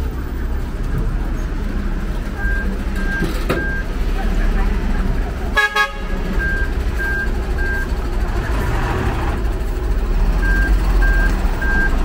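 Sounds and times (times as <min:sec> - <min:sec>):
diesel truck engine rumbling: 0:00.0 - 0:12.0
vehicle warning beeper: 0:02.4 - 0:03.9, 0:06.3 - 0:07.9, 0:10.4 - 0:12.0.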